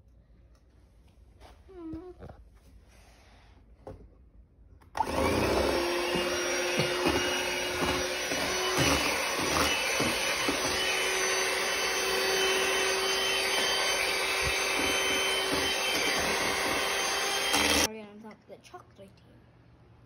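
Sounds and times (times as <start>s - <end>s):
electric hand mixer whirring: 5.0s - 17.9s.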